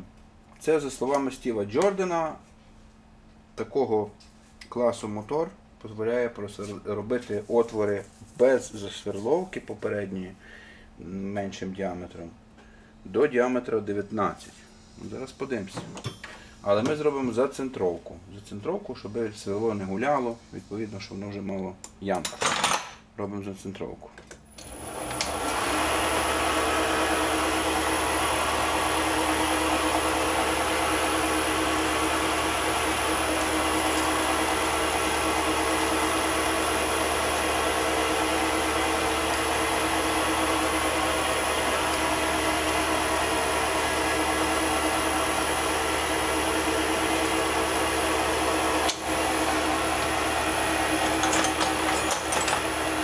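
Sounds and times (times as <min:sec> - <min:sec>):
lathe motor humming with whine: 0:24.6 - 0:53.0.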